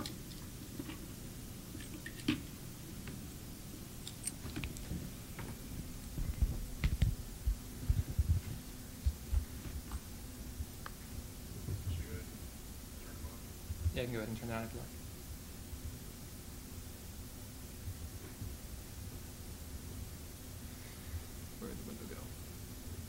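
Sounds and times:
soft low thumps: 4.9s - 10.0s.

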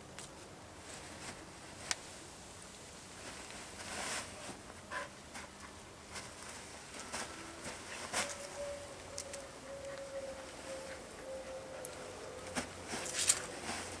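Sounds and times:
dogs rustling on cushion: 5.3s - 8.5s.

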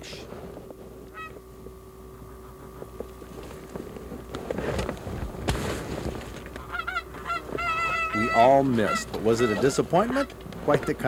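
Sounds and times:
rustling and clatter in brush: 2.8s - 6.7s.

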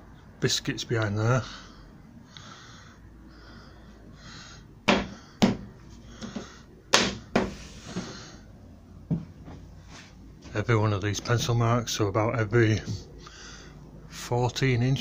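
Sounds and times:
sharp wooden knocks: 4.9s - 7.5s.

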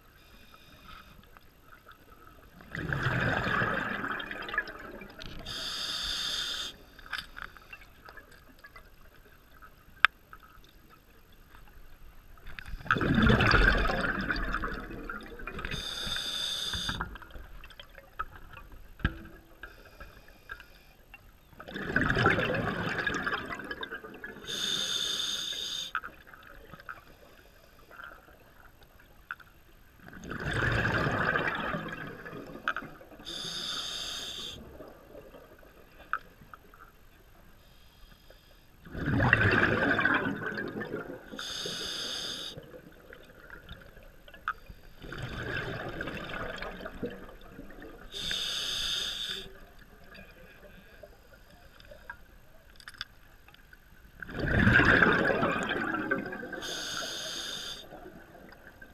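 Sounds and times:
regulator hiss on inhale: 0.2s - 1.3s, 5.4s - 7.8s, 15.6s - 17.0s, 24.4s - 26.0s, 33.2s - 34.6s, 37.6s - 38.8s, 41.4s - 42.6s, 48.1s - 49.6s, 56.6s - 58.0s
exhaust bubbles from diver: 2.7s - 5.2s, 21.7s - 24.4s, 30.2s - 32.6s, 38.9s - 41.3s, 54.3s - 56.8s.

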